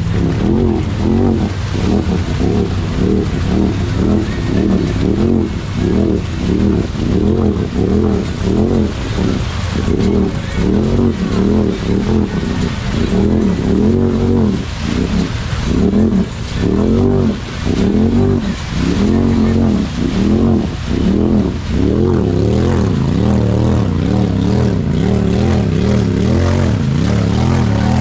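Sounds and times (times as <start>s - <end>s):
engine revving: 0.0s - 28.0s
tires slinging mud: 0.0s - 28.0s.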